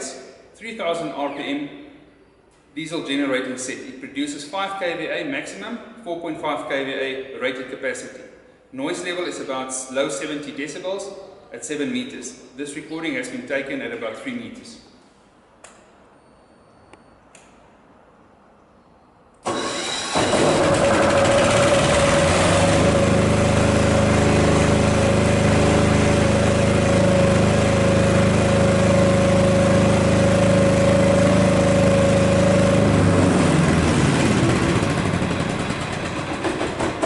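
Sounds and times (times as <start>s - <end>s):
diesel generator running: 19.4s - 37.0s.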